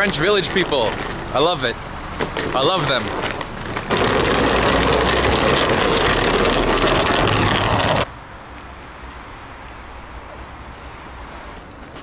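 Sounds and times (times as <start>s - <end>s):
vehicle engine running: 0.0s - 8.1s.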